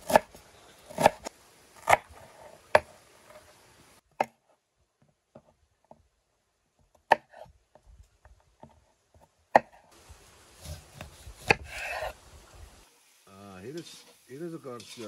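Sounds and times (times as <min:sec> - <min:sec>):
knife chopping on wooden board: 0:00.0 - 0:00.3
faint steady hiss: 0:00.0 - 0:04.9, 0:09.8 - 0:15.0.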